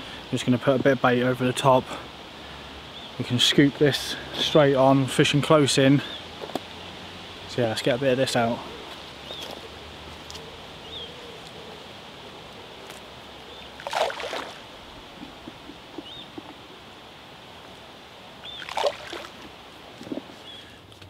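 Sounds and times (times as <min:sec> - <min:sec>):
bait splashing into water: 0:13.8 - 0:14.8, 0:18.5 - 0:19.5.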